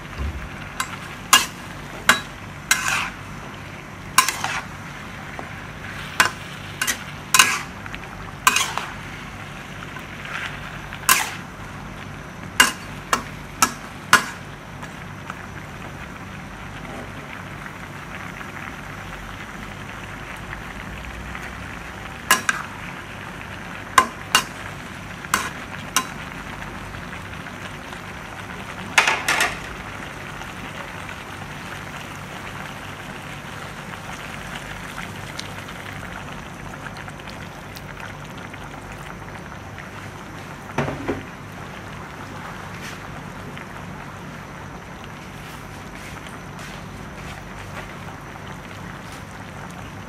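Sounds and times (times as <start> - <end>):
food sizzling in a frying pan: 0.0 - 50.0.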